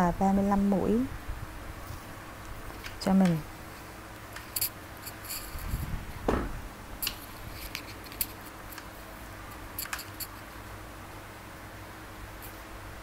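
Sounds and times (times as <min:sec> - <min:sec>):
dull thump: 0:06.2 - 0:06.6.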